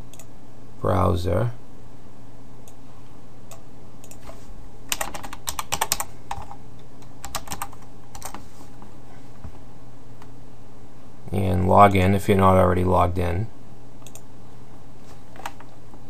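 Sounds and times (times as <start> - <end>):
faint low hum: 0.0 - 16.0
computer keyboard typing: 4.9 - 8.4.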